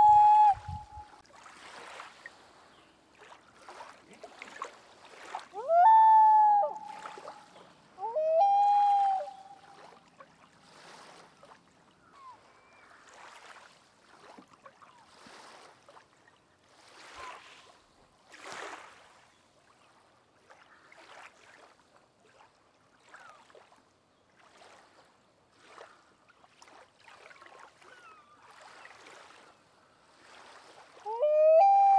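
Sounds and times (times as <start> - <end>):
loon call: 0.0 - 1.1, 5.6 - 7.1, 8.0 - 9.7, 31.1 - 31.9
water lapping and dripping: 0.0 - 8.0, 8.6 - 31.1.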